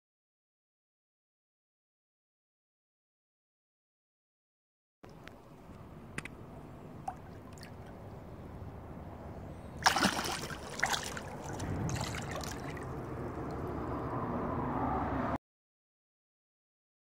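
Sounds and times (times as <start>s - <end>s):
water splashing and sloshing: 5.1s - 14.1s.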